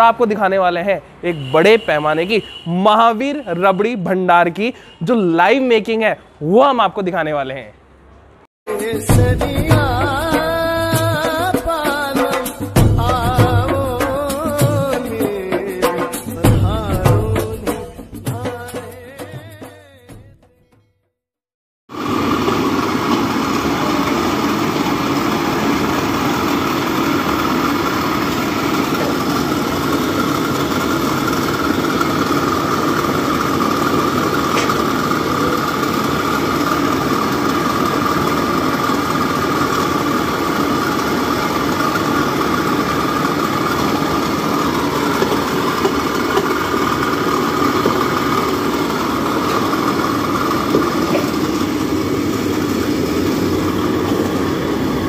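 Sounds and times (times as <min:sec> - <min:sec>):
kitchen machinery droning: 0:21.9 - 0:55.0.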